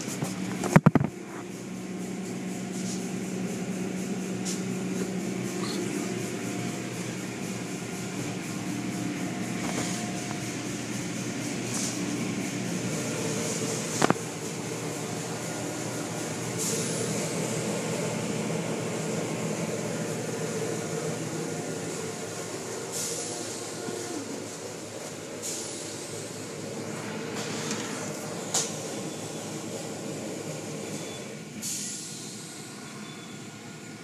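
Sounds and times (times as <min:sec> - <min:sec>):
motor hum: 0:00.0 - 0:31.4
hissing water spray: 0:06.9 - 0:28.9.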